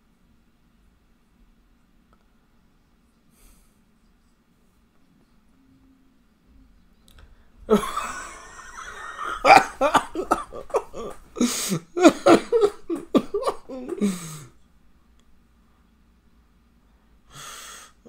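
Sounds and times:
man laughing: 0:07.7 - 0:14.5.

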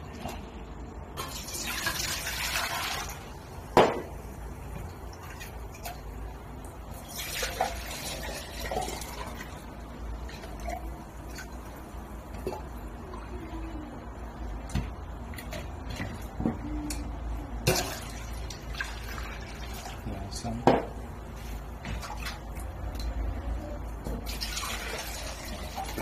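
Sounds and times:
water pouring into steel tray: 0:24.3 - 0:26.0.

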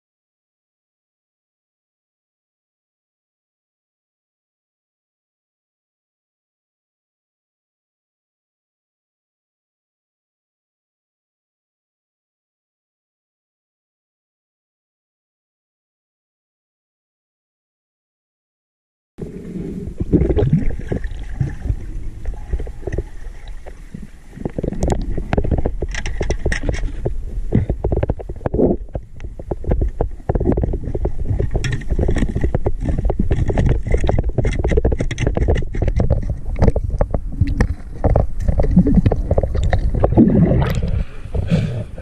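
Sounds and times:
low underwater rumble: 0:19.2 - 0:42.0
scattered clicks and knocks: 0:24.5 - 0:40.1.

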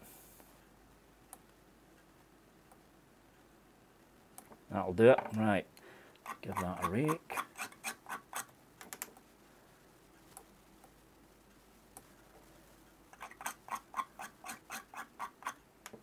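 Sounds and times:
tool raking across vape coil: 0:13.2 - 0:15.6.

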